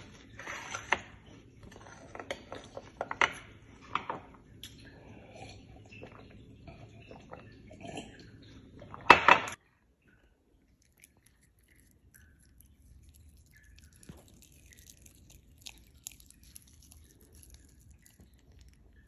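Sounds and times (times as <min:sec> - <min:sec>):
chewing: 0:10.6 - 0:19.0.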